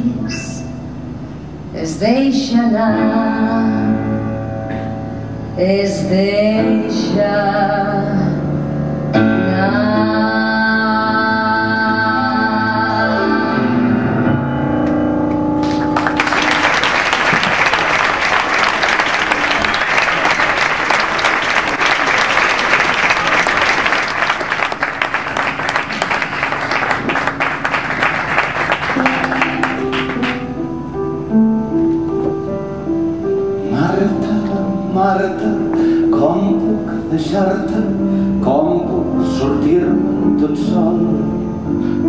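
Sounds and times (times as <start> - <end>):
piano playing: 0.0 - 42.0
audience applauding: 15.3 - 30.6.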